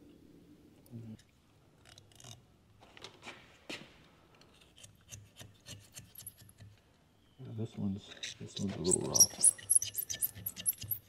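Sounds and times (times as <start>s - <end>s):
metal pick scraping metal: 8.2s - 11.0s.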